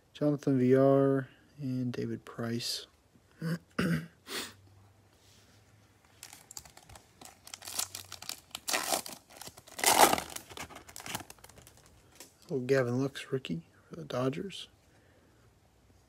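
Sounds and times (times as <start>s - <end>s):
foil wrapper crinkling: 6.2s - 12.3s.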